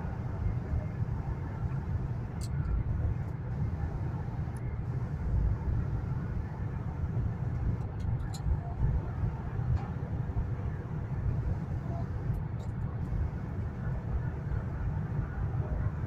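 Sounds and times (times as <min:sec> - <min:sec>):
train cabin low rumble: 0:00.0 - 0:16.0.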